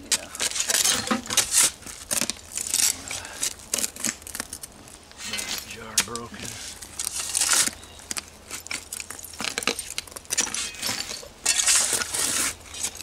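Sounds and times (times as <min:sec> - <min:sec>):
shovel scraping dirt: 0:00.1 - 0:04.0, 0:05.2 - 0:13.0
glass shards clinking: 0:00.4 - 0:02.2, 0:08.5 - 0:13.0.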